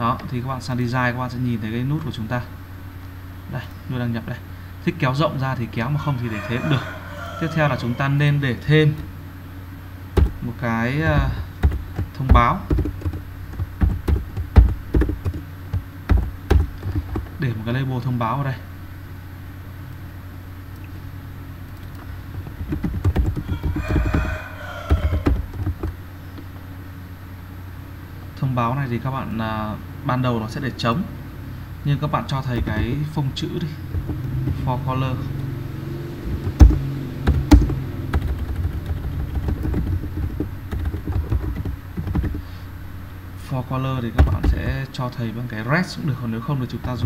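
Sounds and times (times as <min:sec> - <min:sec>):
low hum: 0:00.0 - 0:47.0
chicken call: 0:06.0 - 0:08.3, 0:23.4 - 0:25.5
computer keyboard typing: 0:10.2 - 0:17.4, 0:21.7 - 0:26.0, 0:32.5 - 0:33.2, 0:33.9 - 0:34.7, 0:36.2 - 0:42.5, 0:44.2 - 0:44.8
keyboard key clicks: 0:21.7 - 0:24.2.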